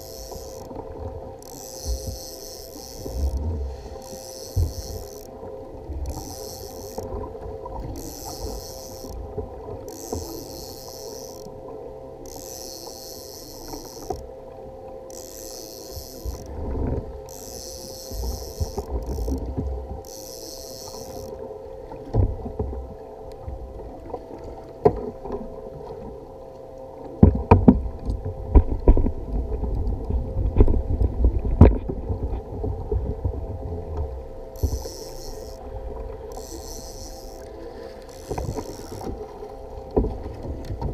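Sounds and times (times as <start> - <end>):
fishing reel cranking: 0.0 - 0.8, 1.4 - 5.4, 6.0 - 9.2, 9.8 - 11.6, 12.2 - 14.3, 15.1 - 16.6, 17.2 - 21.4, 34.5 - 35.7, 36.3 - 39.3
water slapping kayak hull: 0.0 - 26.2, 26.9 - 40.9.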